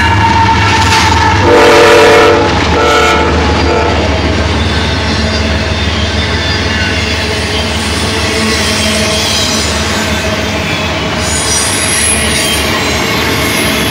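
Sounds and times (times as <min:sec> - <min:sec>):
locomotive horn: 0:00.0 - 0:04.3
rail cars rumbling past: 0:00.0 - 0:13.9.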